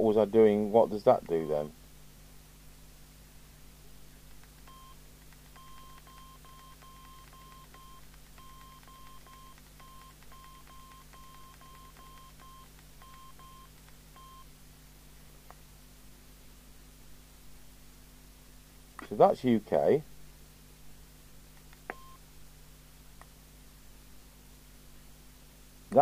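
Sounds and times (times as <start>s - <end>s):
steady low hum: 0.0s - 26.0s
radio key beeps: 1.3s - 1.7s, 4.7s - 14.5s, 21.9s - 22.2s.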